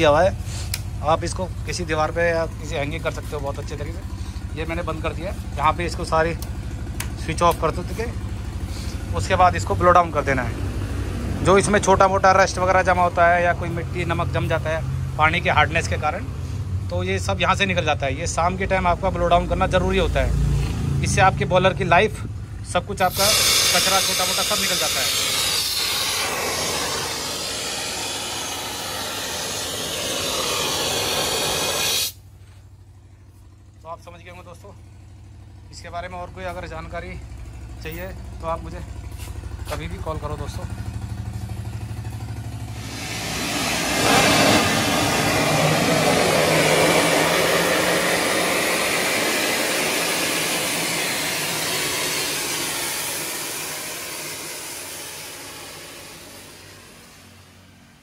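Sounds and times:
steam and water hissing from valve: 23.0s - 32.2s, 42.7s - 57.4s.

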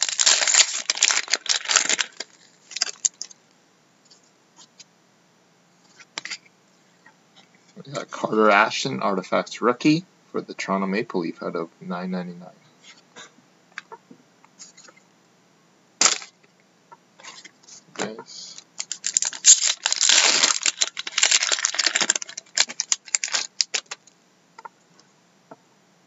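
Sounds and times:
cards rustling: 0.0s - 3.4s, 17.2s - 24.1s
foil wrapper crinkling and tearing: 0.0s - 3.4s, 16.0s - 16.4s, 18.5s - 24.1s.

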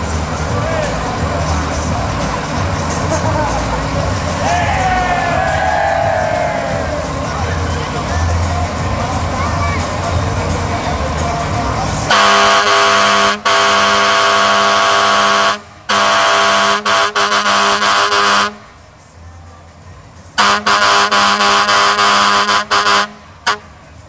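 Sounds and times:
fire engine air horn blaring: 12.1s - 18.8s, 20.4s - 23.8s.

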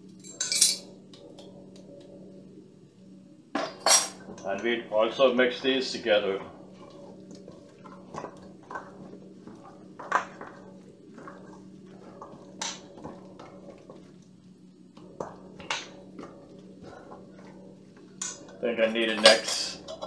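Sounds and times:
low hum: 0.0s - 20.0s
meat mixed by hand in bowl: 5.6s - 20.0s.

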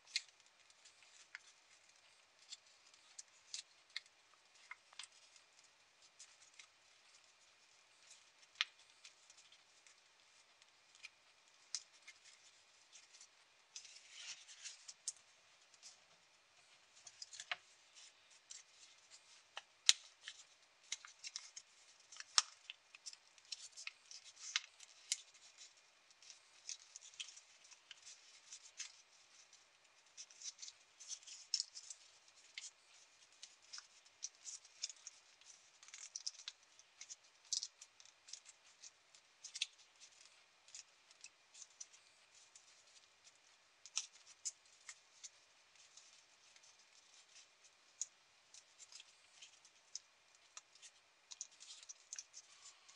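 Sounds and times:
paper crinkling and snapping: 0.0s - 52.9s.

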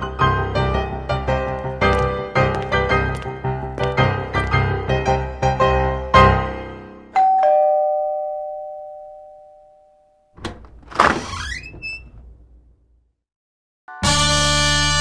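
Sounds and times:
piano music: 0.0s - 8.0s
two-tone doorbell chime: 7.1s - 10.3s
door squeaking open: 10.4s - 12.9s.

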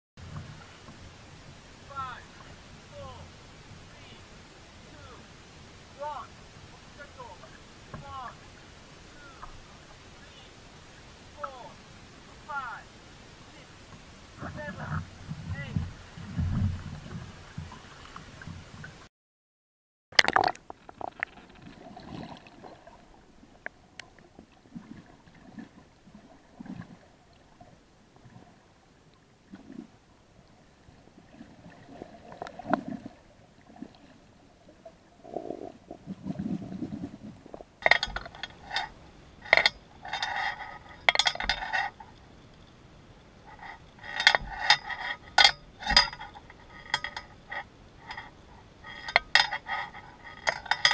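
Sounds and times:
underwater knocks: 14.4s - 17.8s
underwater gurgles: 20.2s - 28.8s, 29.4s - 37.9s
metallic clinks and rattles: 37.8s - 42.1s, 43.5s - 50.9s.

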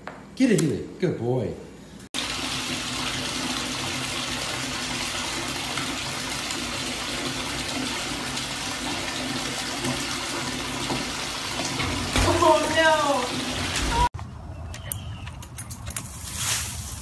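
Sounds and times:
faucet water pouring into tub: 2.2s - 14.1s.

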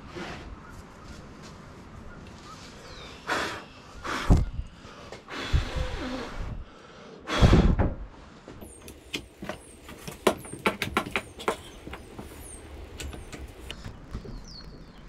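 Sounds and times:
person blowing hard: 5.3s - 7.8s.

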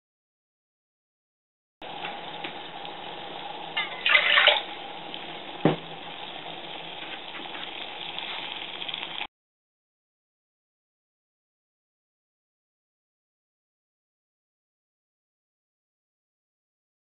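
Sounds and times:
water boiling and bubbling: 1.8s - 9.3s.

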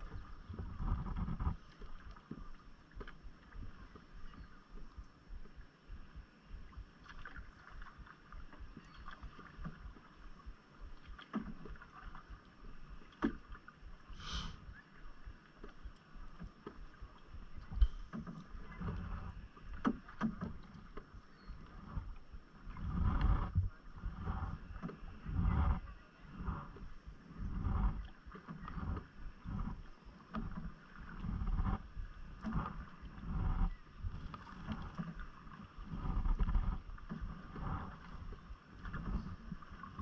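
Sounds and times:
wind on microphone: 0.0s - 2.6s, 16.4s - 40.0s
water splashing and lapping: 0.0s - 40.0s.

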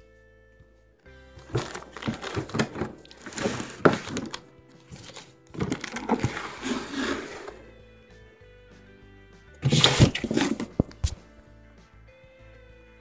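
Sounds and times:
background music: 0.0s - 13.0s
knocks and rustling: 1.4s - 7.7s, 9.6s - 11.2s.

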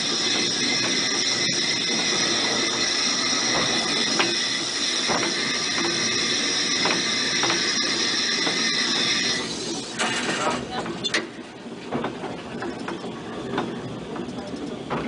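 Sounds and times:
high hiss of escaping steam: 0.0s - 10.0s.

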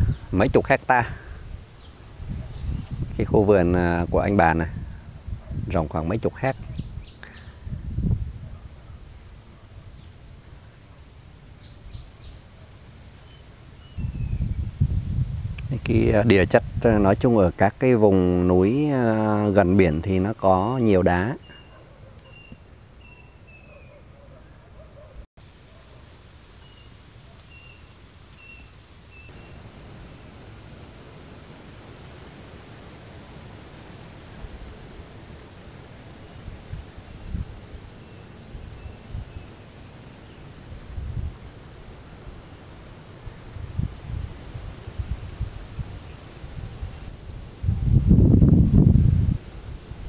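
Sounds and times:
wind rumbling on microphone: 0.0s - 10.6s, 13.9s - 18.7s, 36.3s - 39.5s, 40.6s - 41.5s, 43.3s - 50.0s
high insect drone: 0.0s - 50.0s.

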